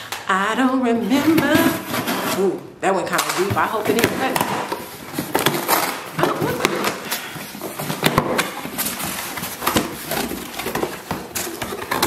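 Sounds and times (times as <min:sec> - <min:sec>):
packaging rustling and knocking: 0:03.2 - 0:12.0.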